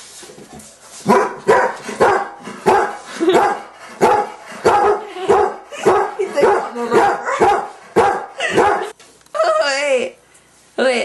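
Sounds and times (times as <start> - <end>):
dog barking: 1.1 - 8.9.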